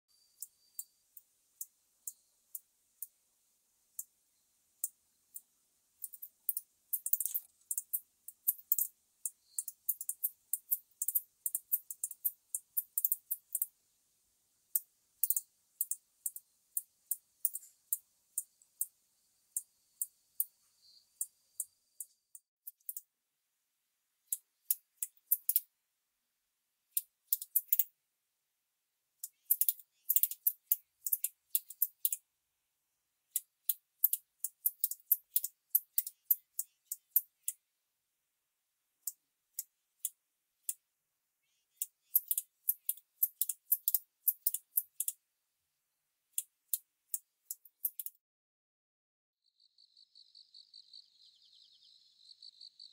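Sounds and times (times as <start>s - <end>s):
bush-cricket high-pitched ticks: 0.1s - 3.2s, 4.8s - 13.8s, 14.7s - 23.1s, 24.3s - 25.7s, 26.9s - 27.9s, 29.2s - 32.2s, 33.3s - 37.6s, 41.5s - 45.2s, 46.4s - 48.2s, 49.5s - 52.9s.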